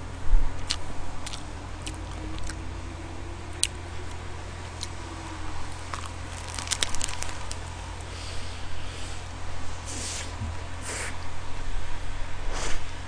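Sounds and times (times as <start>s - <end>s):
person chewing: 0.6s - 2.6s, 3.5s - 5.0s, 5.6s - 8.5s
seaweed crackling: 3.6s - 8.1s.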